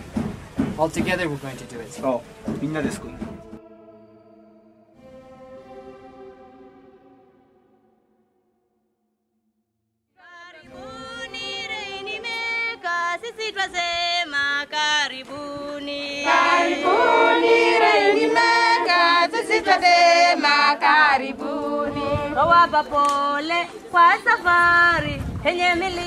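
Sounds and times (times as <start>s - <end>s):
choir singing a cappella: 3.1s - 8.2s, 10.2s - 13.6s, 15.3s - 24.4s.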